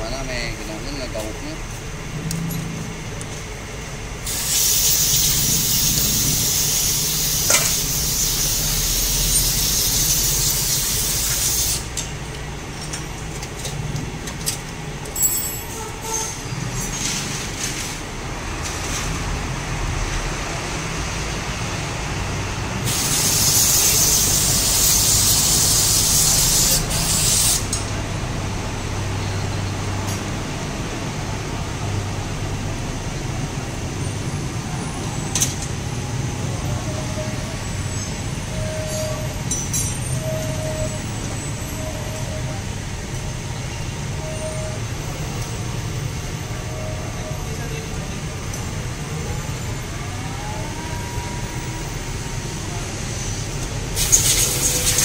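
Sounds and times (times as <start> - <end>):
aerosol spray hissing: 4.3 - 12.0, 22.9 - 27.7, 54.0 - 55.0.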